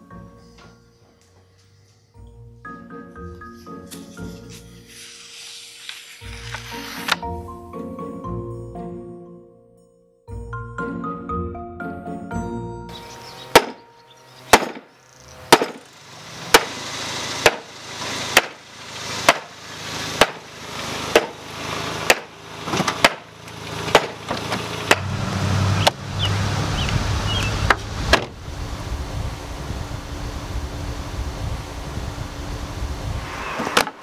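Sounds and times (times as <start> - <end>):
sharp striking blows: 13.5 - 15.9, 17.4 - 17.7, 18.3 - 18.6, 19.2 - 19.5, 20.2 - 20.5, 21.1 - 21.4, 22.0 - 22.3, 23.0 - 23.3
rising rush of noise: 25.0 - 34.0
low rumble: 26.0 - 34.0.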